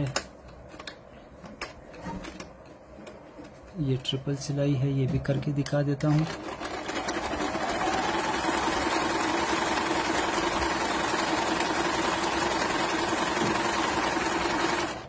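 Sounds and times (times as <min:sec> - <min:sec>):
sewing machine running: 0:06.0 - 0:15.0.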